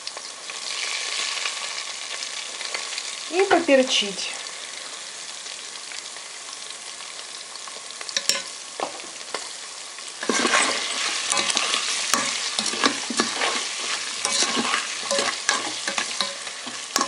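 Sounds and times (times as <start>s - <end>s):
meat sizzling in hot oil: 0.0s - 17.0s
ladle clacking and scraping: 10.2s - 17.0s.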